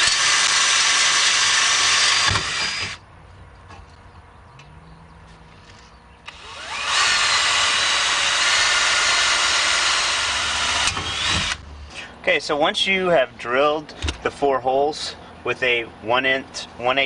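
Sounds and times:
drill whining through metal: 0.0s - 3.0s, 6.3s - 11.6s.

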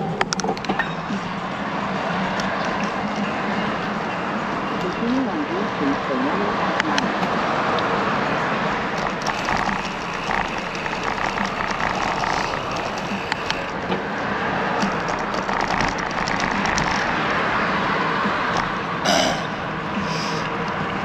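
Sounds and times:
bike clicks and rattles: 0.0s - 1.2s, 8.9s - 14.0s, 14.8s - 17.3s
bicycle tyre noise on road: 0.0s - 5.2s, 5.8s - 21.0s.

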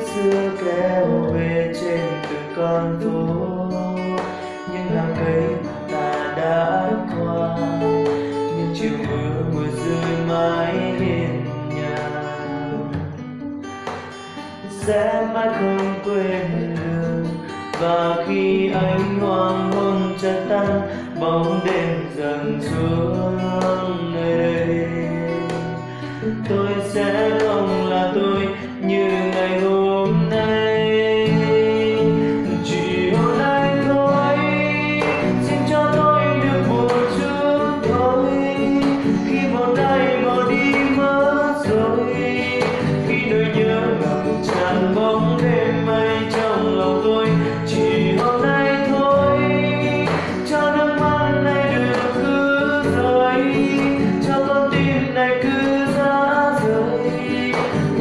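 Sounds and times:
man singing: 0.0s - 13.3s, 13.9s - 58.0s
acoustic guitar strummed chords: 0.0s - 58.0s.

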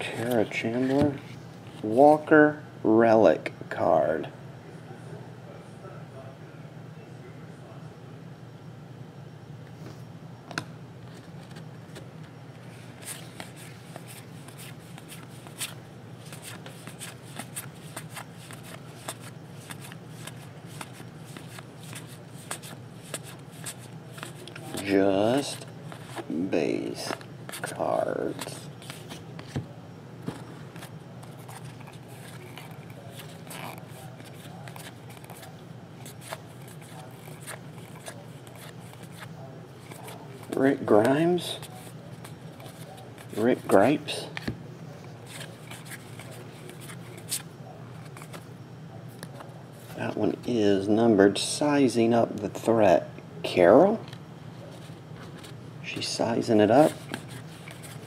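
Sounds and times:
steady low hum: 0.0s - 58.0s
trading cards flicking and sliding: 12.9s - 29.6s, 30.3s - 44.5s, 45.2s - 48.4s, 56.7s - 58.0s
trading cards flicking by hand: 13.0s - 26.3s.

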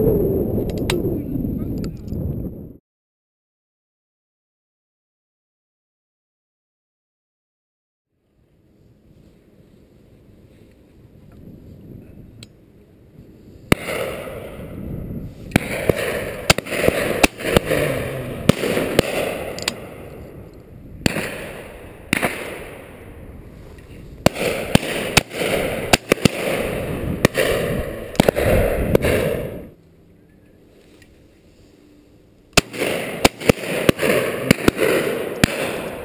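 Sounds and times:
sharp clicks and pops: 0.6s - 1.0s, 15.5s - 19.8s.

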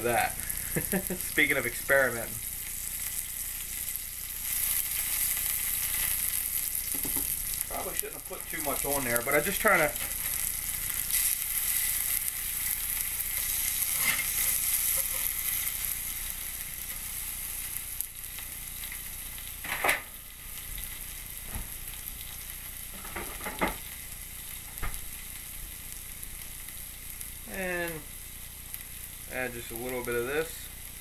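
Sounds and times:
steaks sizzling on a grill pan: 0.0s - 31.0s
sharp clicks and pops: 6.9s - 7.4s.

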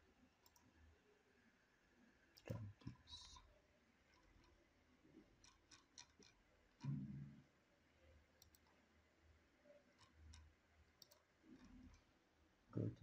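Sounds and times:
computer mouse clicks: 0.4s - 0.7s, 4.1s - 4.6s, 5.4s - 7.3s, 8.4s - 8.8s, 10.0s - 12.1s.

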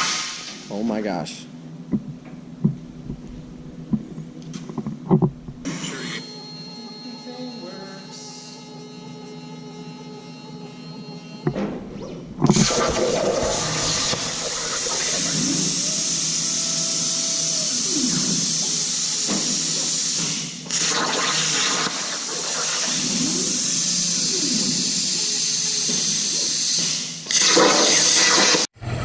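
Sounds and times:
plasma cutter hissing: 12.5s - 28.7s.

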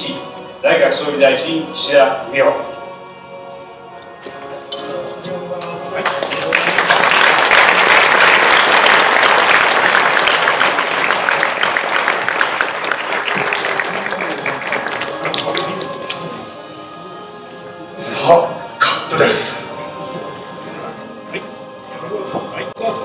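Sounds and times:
audience applauding: 6.0s - 16.6s.

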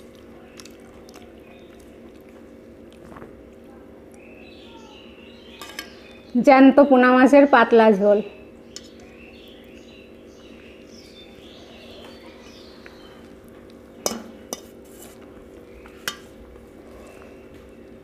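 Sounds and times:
low background hum: 0.0s - 18.0s
fingers mixing food on plate: 12.8s - 17.8s.

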